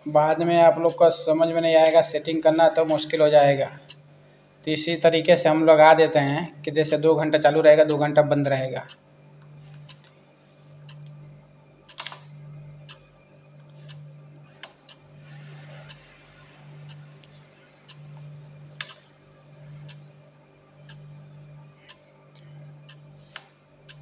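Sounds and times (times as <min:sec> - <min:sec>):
timer switch humming: 0:00.0 - 0:24.0
timer soft ticking: 0:00.4 - 0:04.1, 0:09.7 - 0:10.1, 0:10.8 - 0:15.1, 0:15.7 - 0:20.1, 0:20.8 - 0:24.0
pins pressed clicking: 0:11.9 - 0:13.0, 0:18.8 - 0:19.1.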